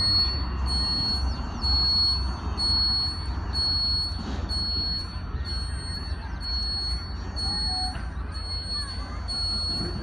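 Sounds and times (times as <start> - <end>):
high-pitched electronic tone: 0.0 - 10.0.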